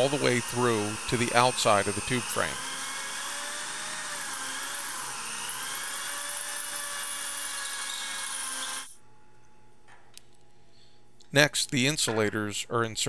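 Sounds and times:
electric drill boring metal: 0:00.0 - 0:09.0.

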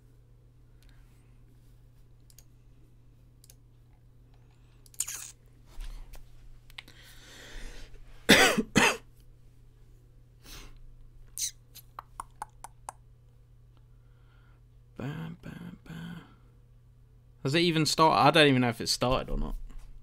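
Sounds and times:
small sharp clicks: 0:02.2 - 0:02.5
man coughing: 0:08.3 - 0:09.1.

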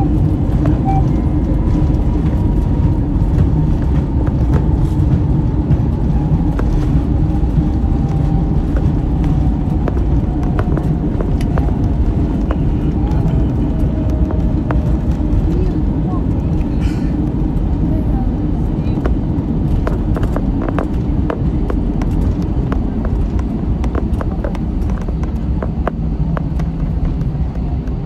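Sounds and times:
vehicle rumble from inside: 0:00.0 - 0:28.0.

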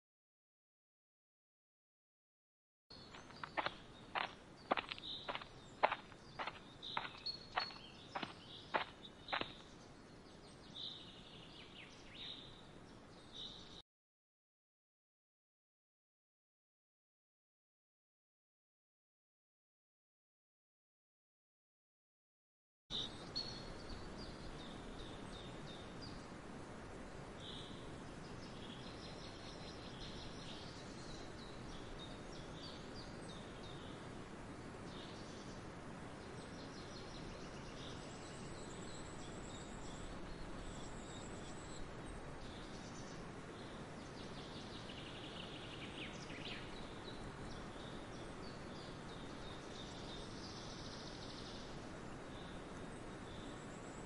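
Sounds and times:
birds chirping: 0:02.9 - 0:13.8
outdoor background noise: 0:02.9 - 0:13.8, 0:22.9 - 0:54.0.

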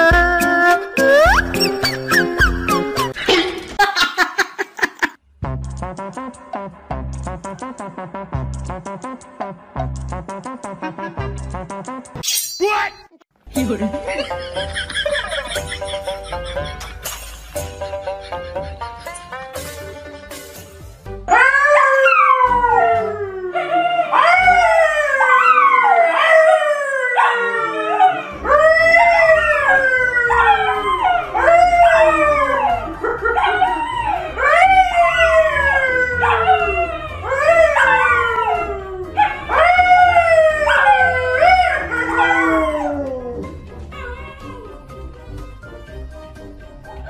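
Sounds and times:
dogs howling: 0:21.3 - 0:44.9
man howling: 0:27.1 - 0:44.8.

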